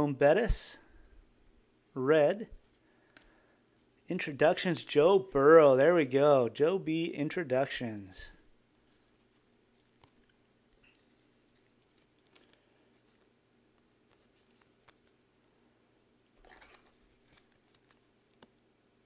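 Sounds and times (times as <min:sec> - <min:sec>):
cards handling clicks and rustle: 0:08.9 - 0:15.2, 0:16.4 - 0:18.7.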